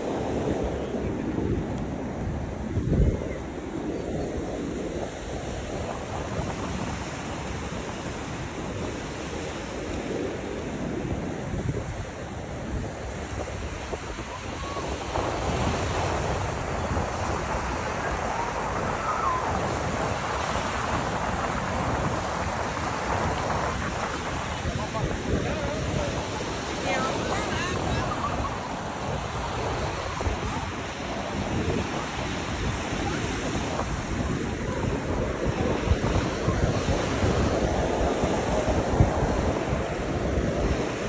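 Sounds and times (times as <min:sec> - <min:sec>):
surf washing onto beach: 0:00.0 - 0:41.0
wind rumbling on microphone: 0:00.0 - 0:41.0.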